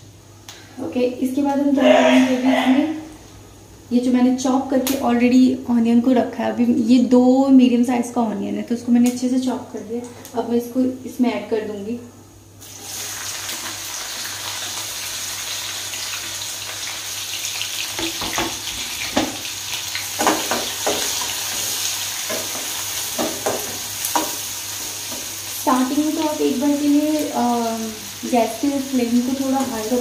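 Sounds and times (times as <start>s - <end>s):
onions sizzling in oil: 12.6s - 30.0s.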